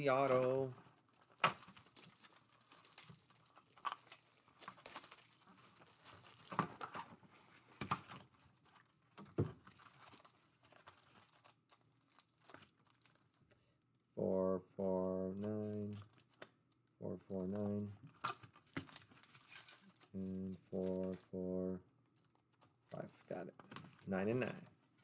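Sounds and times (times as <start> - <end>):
foil packs rustling and crinkling: 0.0 - 13.6, 17.6 - 21.2, 22.2 - 25.0.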